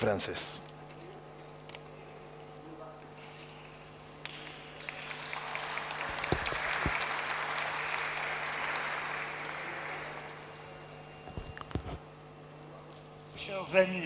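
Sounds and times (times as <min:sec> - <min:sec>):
audience applauding: 0:04.1 - 0:10.8.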